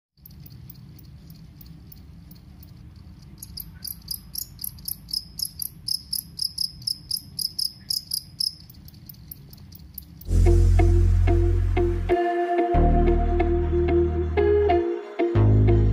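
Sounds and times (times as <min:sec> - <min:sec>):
cricket chirping: 0:00.2 - 0:10.3
loud music: 0:10.3 - 0:15.9.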